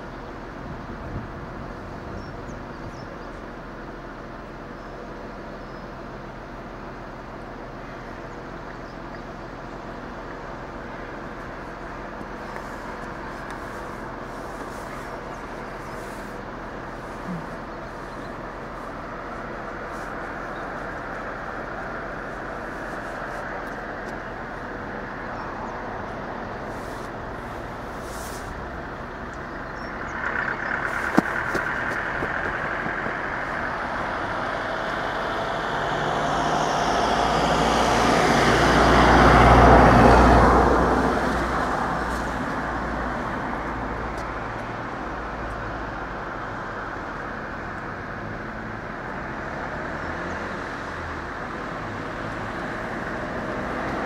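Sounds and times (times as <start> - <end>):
engine hum: 0.0 - 54.0
motor vehicle passing: 12.4 - 45.2.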